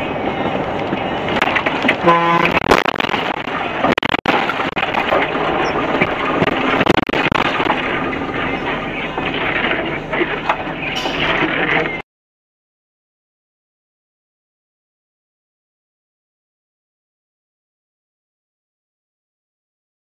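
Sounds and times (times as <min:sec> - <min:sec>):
tyres on wet road: 0:00.0 - 0:12.0
car horn blast: 0:02.0 - 0:02.8.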